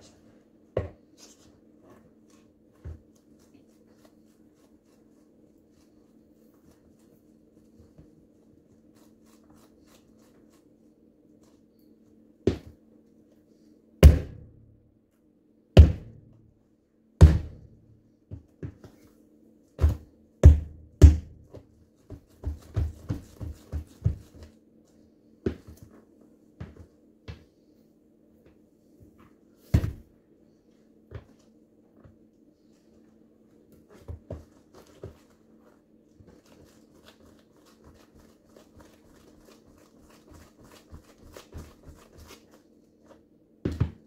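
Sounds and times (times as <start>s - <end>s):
sneakers stomping on pumpkin: 15.8s - 16.2s, 17.2s - 17.6s, 19.8s - 21.5s.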